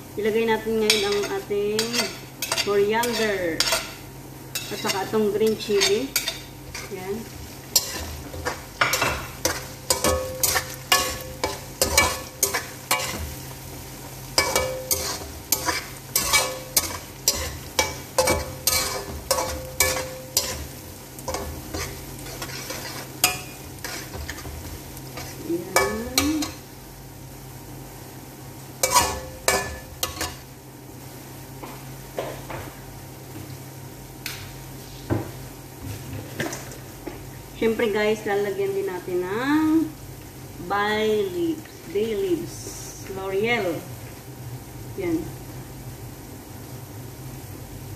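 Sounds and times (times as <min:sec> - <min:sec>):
frying sizzle: 0:00.0 - 0:47.9
metal turner scraping a wok: 0:00.9 - 0:07.1, 0:07.7 - 0:13.4, 0:14.4 - 0:26.6, 0:28.8 - 0:30.4.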